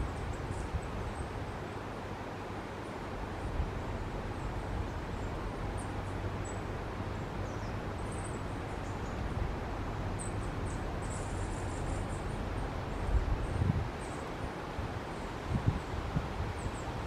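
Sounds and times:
rushing background noise: 0.0s - 17.0s.

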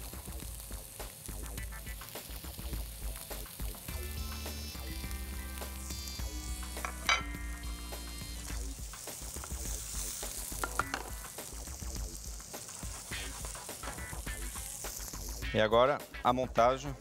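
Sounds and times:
fish sizzling in a frying pan: 0.0s - 16.3s.

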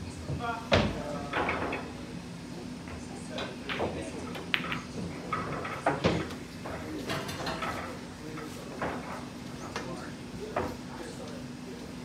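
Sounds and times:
pool balls clicking: 3.6s - 7.8s.

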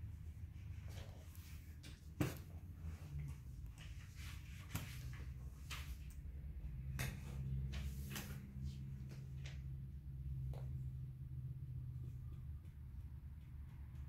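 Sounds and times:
low hum: 6.2s - 14.0s.

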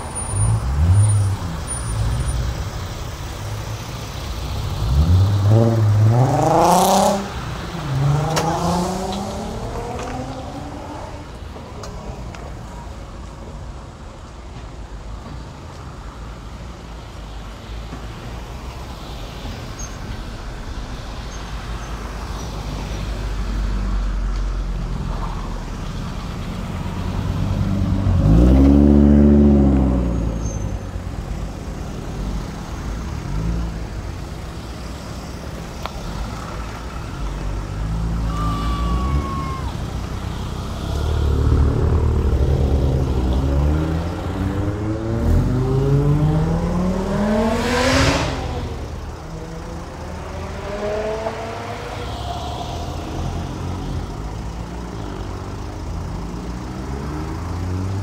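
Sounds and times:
car engine passing close by: 0.0s - 12.3s, 25.0s - 35.4s, 36.0s - 58.0s
cars driving past slowly: 0.0s - 58.0s.

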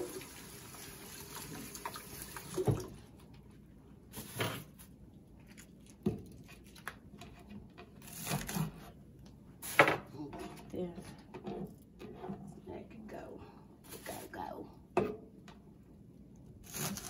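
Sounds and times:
kitchen faucet running water: 0.0s - 3.0s.

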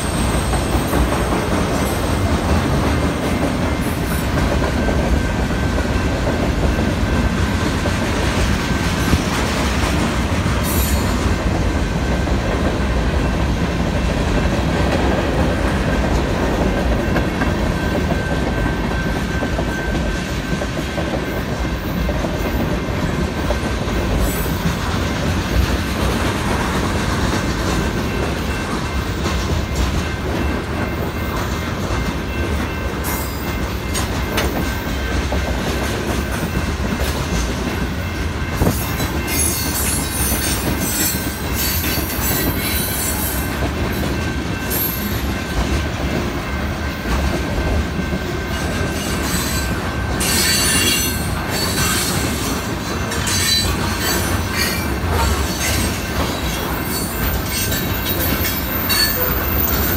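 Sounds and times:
train wheels squealing: 0.0s - 7.7s, 10.6s - 11.6s, 16.7s - 25.0s, 27.9s - 45.6s, 48.0s - 59.9s
crossing warning bell ringing: 0.0s - 9.3s, 10.0s - 59.9s
train wheels rumbling on rails: 0.0s - 59.9s.

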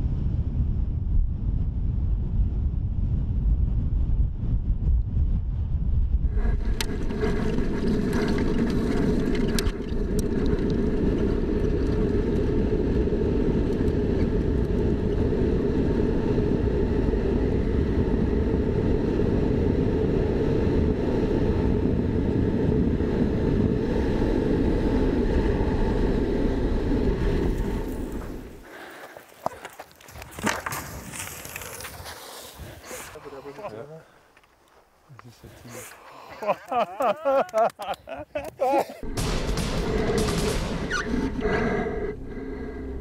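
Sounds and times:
wind rushing on microphone: 0.0s - 29.0s, 38.4s - 43.0s
tyre rumble on gravel: 28.7s - 32.8s.

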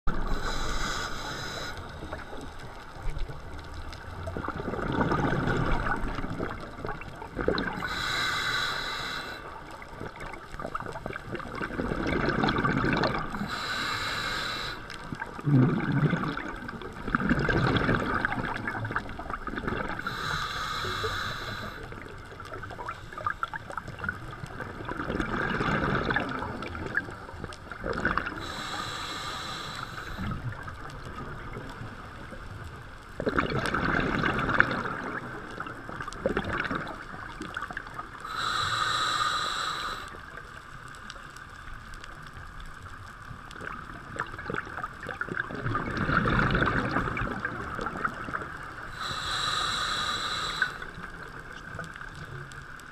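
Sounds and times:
exhaled bubbles rumbling: 0.1s - 8.1s, 9.6s - 13.9s, 15.1s - 20.2s, 21.6s - 28.7s, 30.1s - 38.5s, 42.7s - 49.7s
regulator hissing inhale: 0.2s - 2.7s, 7.7s - 9.7s, 13.4s - 15.1s, 20.0s - 22.1s, 22.8s - 23.7s, 28.3s - 30.5s, 38.2s - 40.4s, 48.9s - 51.2s.

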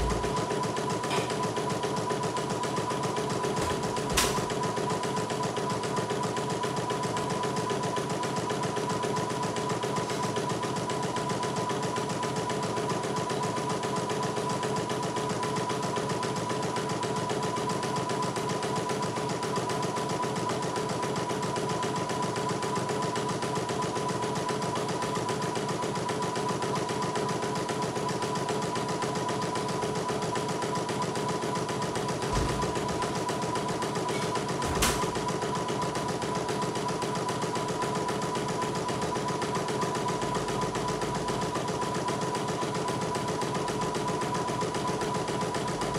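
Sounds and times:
embroidery machine stitching: 0.0s - 45.9s.

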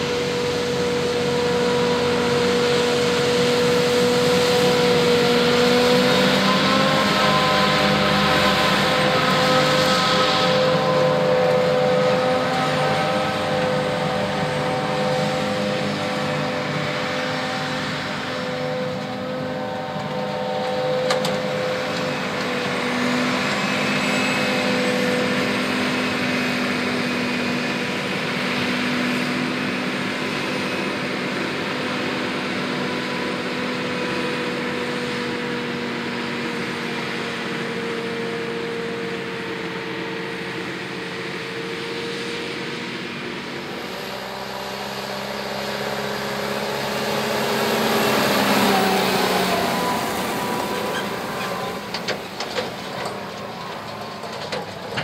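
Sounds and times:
heavy diesel engines droning: 0.0s - 55.0s
tractor approaching: 0.0s - 55.0s.

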